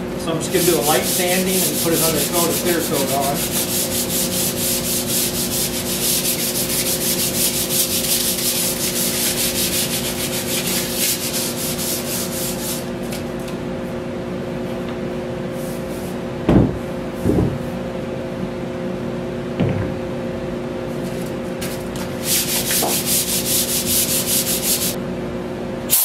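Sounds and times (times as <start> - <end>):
steady hum: 0.0 - 26.0
hand sanding wood: 0.5 - 13.0, 21.6 - 25.0.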